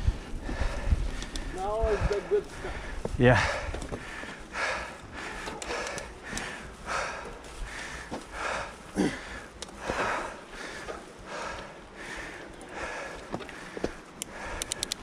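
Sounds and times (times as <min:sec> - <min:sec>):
person breathing hard: 0:00.0 - 0:15.0.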